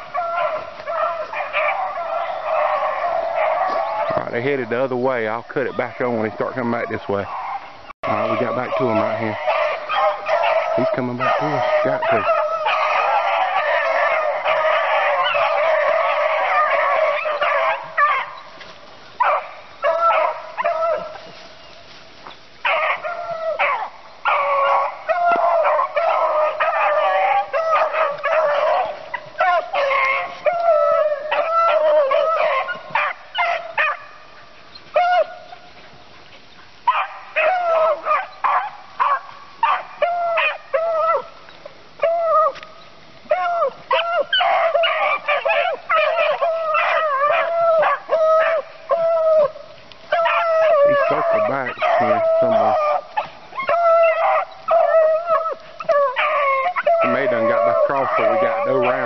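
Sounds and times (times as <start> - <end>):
hounds barking and bawling: 0.0 - 59.0.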